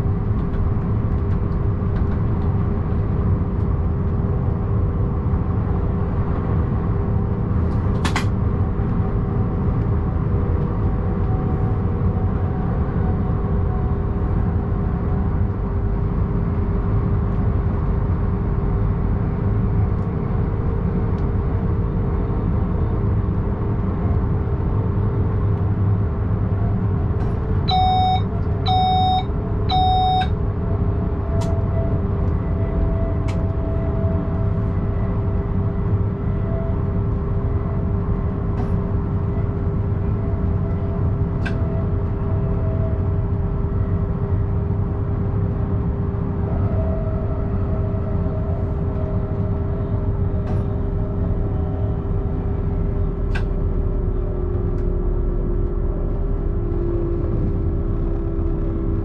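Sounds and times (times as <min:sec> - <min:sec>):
electric traction hum: 0:24.2 - 0:46.4
short warning beeps: 0:27.7 - 0:30.3.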